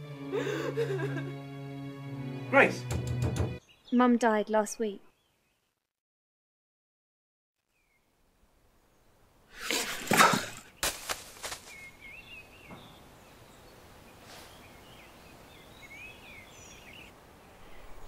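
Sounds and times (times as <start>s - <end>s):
birds singing: 3.6s - 5.7s, 7.7s - 8.1s, 11.6s - 18.0s
faint outdoor hiss: 7.6s - 18.0s.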